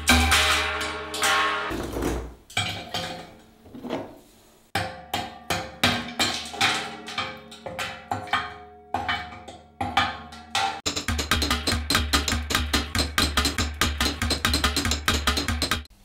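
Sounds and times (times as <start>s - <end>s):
hammer knocking on steel rod: 9.0s - 15.9s.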